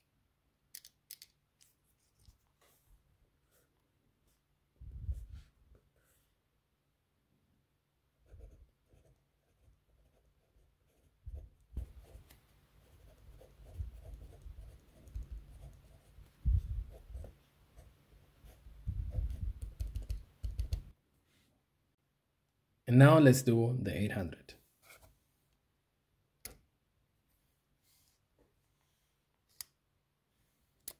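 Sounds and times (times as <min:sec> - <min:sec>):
pencil lead scratching paper: 0:08.2 - 0:20.9.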